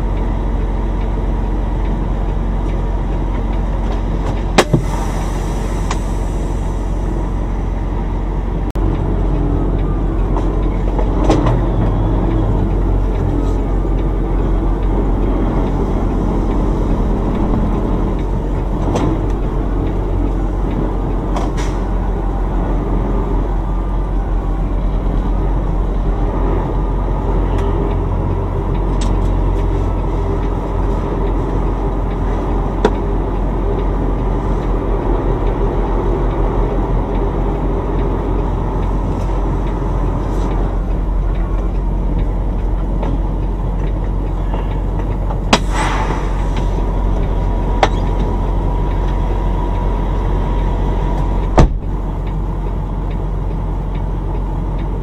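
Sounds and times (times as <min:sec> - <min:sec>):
diesel engine running: 0:00.0 - 0:55.0
air hiss: 0:04.8 - 0:07.3, 0:45.6 - 0:46.8.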